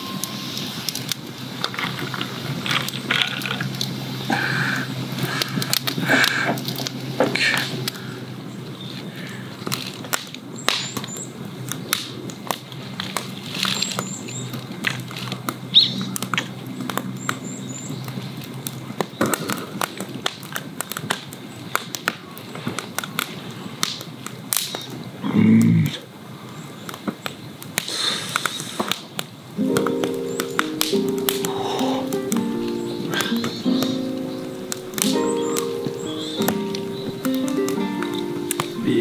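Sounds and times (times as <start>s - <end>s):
campfire crackling and popping: 0.0s - 39.0s
small birds chirping: 2.4s - 20.1s, 29.6s - 39.0s.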